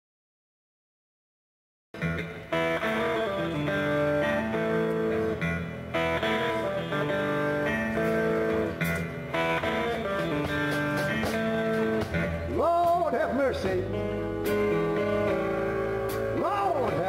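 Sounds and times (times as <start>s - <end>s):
electric guitar: 2.0s - 17.0s
held keyboard chords: 2.0s - 17.0s
live band playing: 2.0s - 17.0s.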